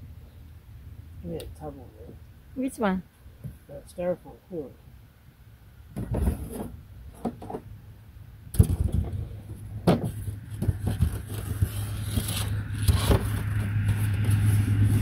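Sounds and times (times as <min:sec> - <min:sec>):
engine humming: 0:05.0 - 0:15.0
handling knocks and rustles: 0:05.9 - 0:07.7, 0:08.5 - 0:15.0.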